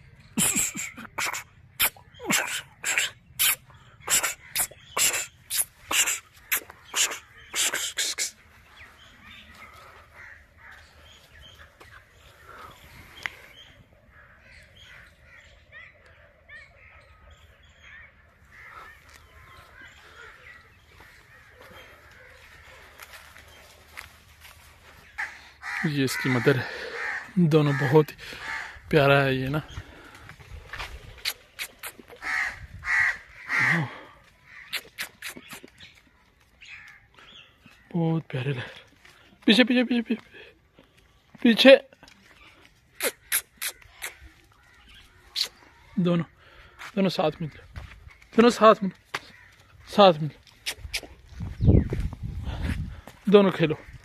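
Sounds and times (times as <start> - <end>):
birds chirping: 0.0 - 54.0
crow cawing: 9.2 - 12.8, 14.0 - 24.1, 25.1 - 28.9, 32.2 - 34.8, 36.6 - 37.9, 49.1 - 49.9.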